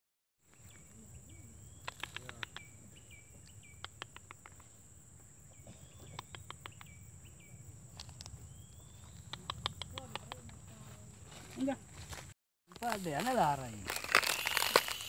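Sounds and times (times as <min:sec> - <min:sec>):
sharp clicks: 0:01.8 - 0:02.7, 0:03.8 - 0:04.7, 0:06.1 - 0:07.0, 0:09.2 - 0:10.6
high-pitched insect drone: 0:12.7 - 0:15.0
bird call rising and dropping: 0:14.0 - 0:15.0.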